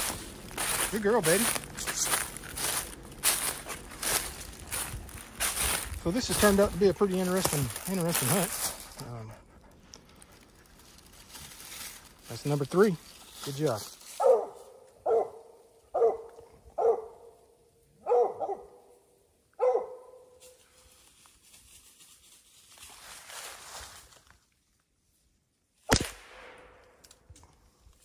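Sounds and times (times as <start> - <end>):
dog barking: 14.2 - 17.4, 18.0 - 18.9, 19.6 - 20.4
sharp crack: 25.9 - 27.2.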